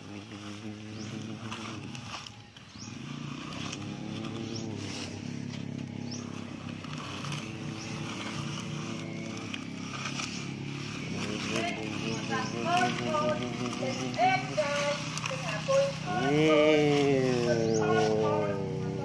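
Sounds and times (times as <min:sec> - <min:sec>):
engine-like drone: 0:00.0 - 0:19.0
toy truck scraping through wet sand: 0:00.0 - 0:19.0.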